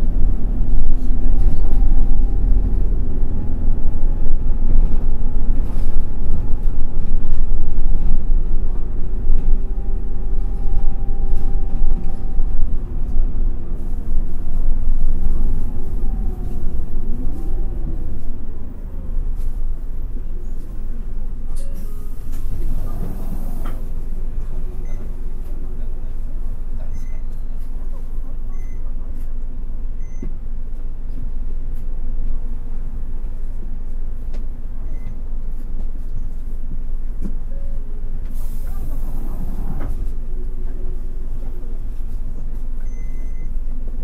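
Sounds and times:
bus engine droning: 0.0s - 44.0s
heavy road rumble: 0.0s - 44.0s
faint whining tones: 0.2s - 20.9s.

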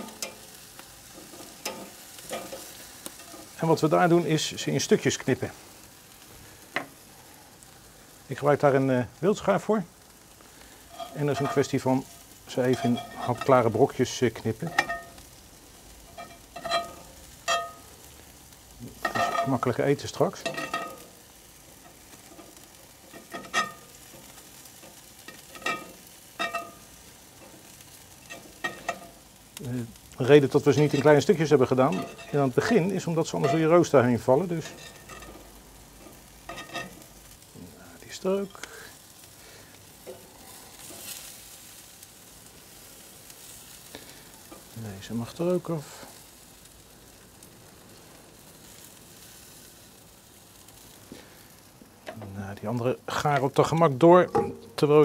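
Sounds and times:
chicken sizzling: 0.0s - 55.0s.

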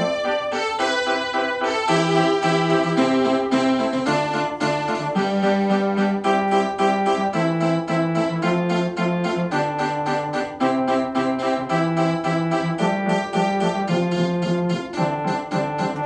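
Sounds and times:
keyboard music: 0.0s - 16.0s.

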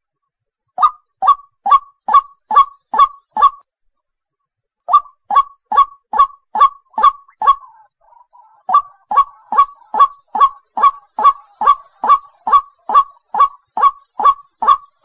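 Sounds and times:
waterhen harsh calling: 4.9s - 15.0s.

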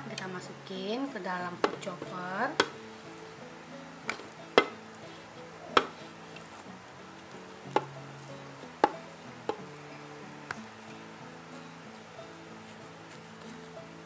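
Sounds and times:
soft background music: 0.0s - 14.0s
utensil knocking on plastic bowl: 1.6s - 2.8s, 4.1s - 4.8s, 5.7s - 6.0s.

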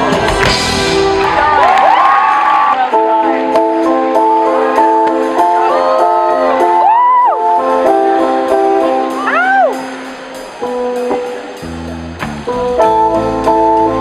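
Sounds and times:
live band music: 0.0s - 14.0s.

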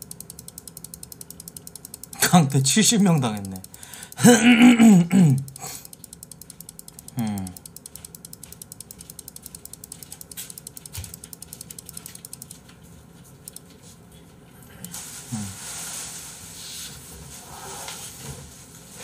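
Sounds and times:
rapid mouse clicking: 0.0s - 4.3s, 5.3s - 12.8s, 13.4s - 13.8s
person humming: 4.2s - 5.8s, 7.1s - 7.7s, 14.8s - 15.6s.

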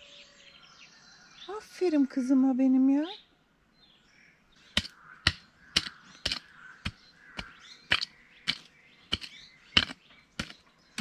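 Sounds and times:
faint bird calls: 0.0s - 11.0s
hoe chopping soil: 4.7s - 11.0s.

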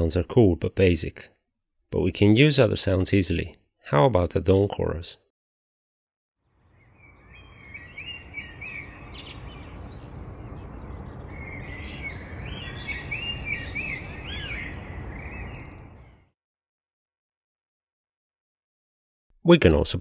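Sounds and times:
birds chirping and singing: 6.5s - 16.3s.

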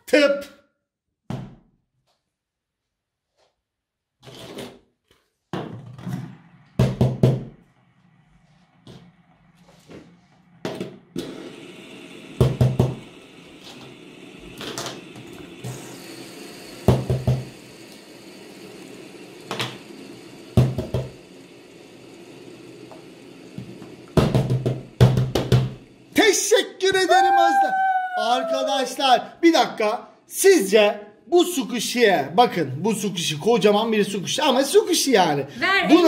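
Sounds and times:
plastic toys knocking on a tabletop: 24.2s - 25.8s.

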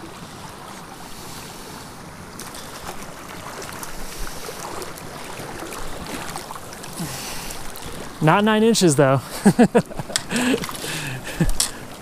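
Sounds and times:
creek rushing over rocks: 0.0s - 9.2s.

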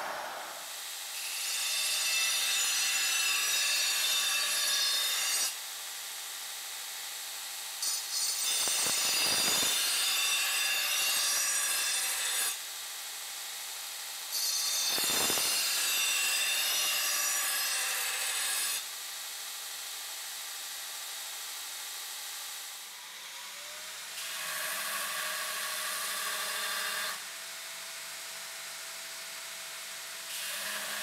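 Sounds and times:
belt grinder grinding steel: 8.4s - 9.8s, 14.8s - 17.1s.

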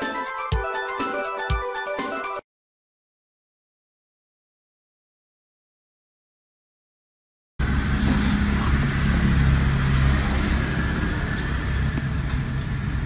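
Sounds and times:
car engine idling: 7.6s - 13.0s.

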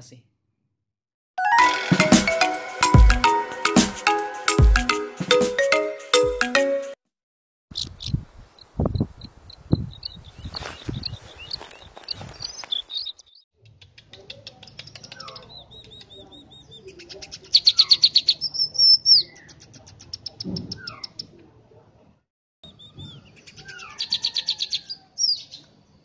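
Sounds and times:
bird singing clicks and whistles: 12.4s - 16.2s.

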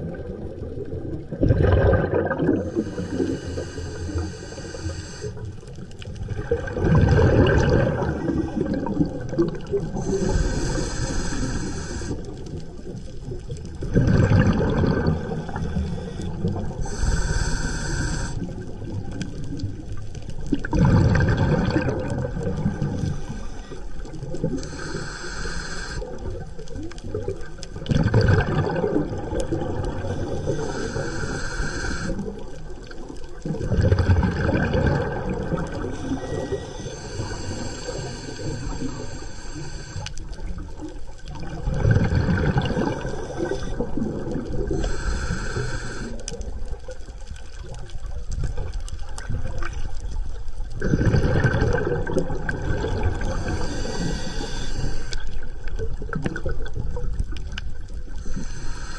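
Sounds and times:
exhaled bubbles gushing: 0.0s - 4.3s, 6.0s - 17.0s, 18.2s - 23.4s, 26.1s - 39.1s, 40.3s - 58.3s
air hissing through regulator: 2.6s - 5.5s, 10.0s - 12.3s, 15.4s - 18.4s, 24.6s - 26.2s, 30.0s - 32.3s, 35.9s - 40.2s, 42.9s - 44.0s, 44.7s - 46.3s, 53.2s - 55.3s, 58.2s - 58.9s.

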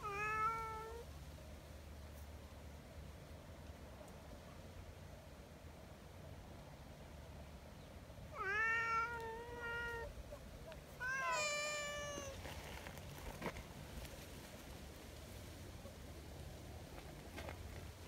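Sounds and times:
cat meowing: 0.0s - 1.0s, 8.4s - 10.1s, 11.0s - 12.4s.

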